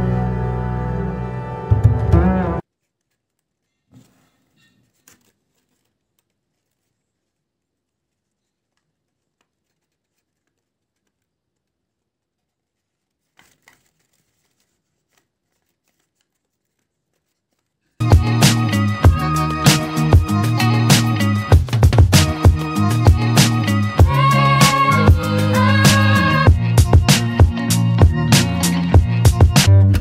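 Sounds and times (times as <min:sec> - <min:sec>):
paper rustling and clicks: 0:02.7 - 0:18.0
loud music with a beat: 0:18.0 - 0:30.0.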